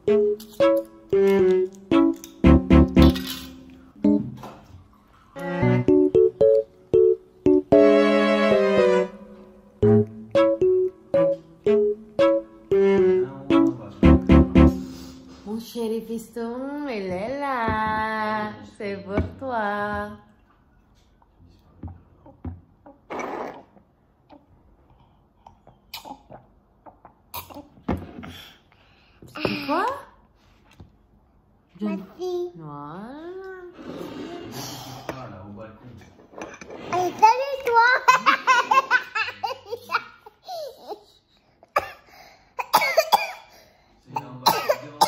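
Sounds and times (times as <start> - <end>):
child sipping and slurping water: 23.1 - 23.9, 33.8 - 35.0, 36.3 - 37.3
child laughing: 37.8 - 41.0.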